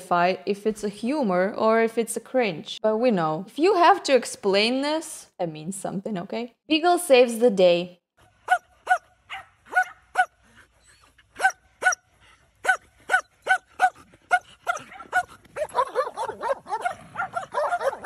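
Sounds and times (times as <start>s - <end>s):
dog barking: 8.5s - 10.4s, 11.4s - 12.0s, 12.6s - 18.0s.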